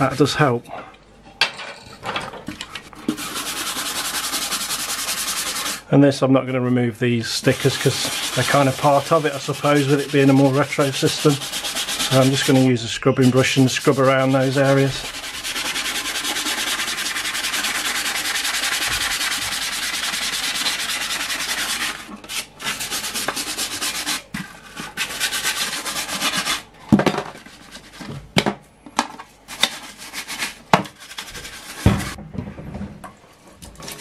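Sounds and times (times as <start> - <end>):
brush scrubbing wet plastic: 2.9 - 5.9, 7.2 - 26.7, 27.3 - 28.1, 29.4 - 32.2.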